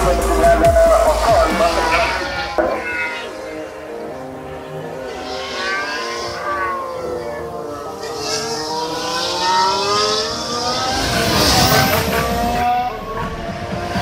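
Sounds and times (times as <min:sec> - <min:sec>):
rough low engine rumble: 0:00.0 - 0:05.1
race car engines passing: 0:00.0 - 0:14.0.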